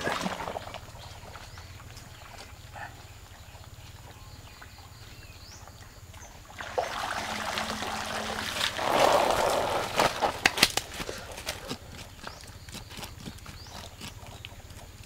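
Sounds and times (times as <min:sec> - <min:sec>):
water splashing and streaming: 0:00.0 - 0:02.4, 0:05.6 - 0:10.8
sharp wet slaps: 0:09.9 - 0:11.8.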